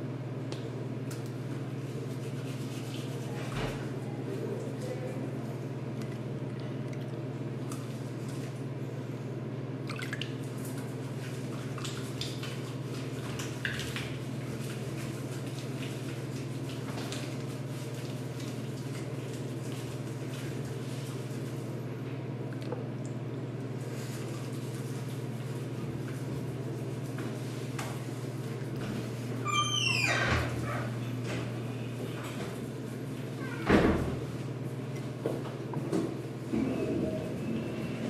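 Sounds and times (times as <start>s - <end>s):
drips and splashes: 9.8s - 14.9s.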